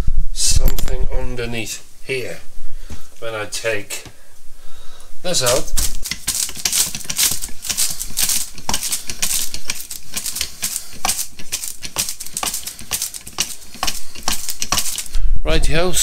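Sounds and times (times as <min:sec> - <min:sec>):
hydraulic jack clicks and rattles: 0:06.0 - 0:15.2.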